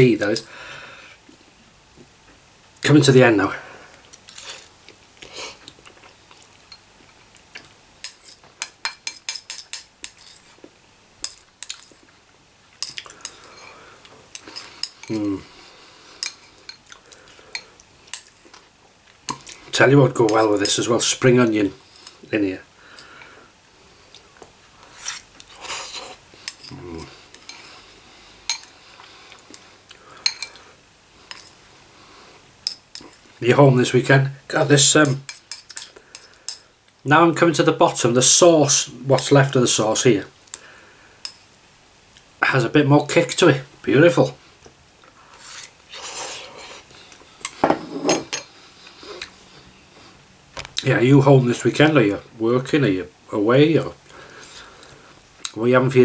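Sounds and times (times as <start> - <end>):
cutlery clinking against a bowl: 7.5 - 10.6, 12.8 - 15.2, 16.2 - 18.6, 28.5 - 28.7, 30.2 - 30.6, 32.6 - 33.3, 35.0 - 36.6, 47.4 - 48.5.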